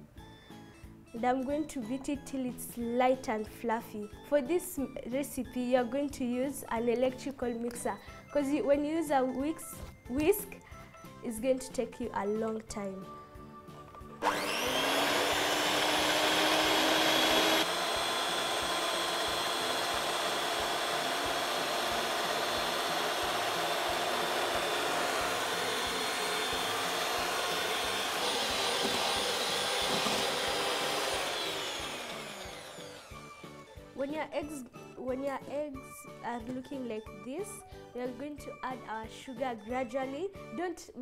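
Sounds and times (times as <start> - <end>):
electric hand mixer whining: 14.2 - 33.9.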